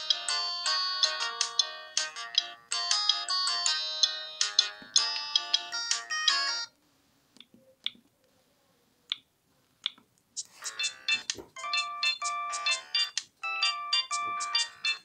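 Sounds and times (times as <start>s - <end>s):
polyphonic ringtone melody: 0.0s - 6.7s, 10.4s - 15.0s.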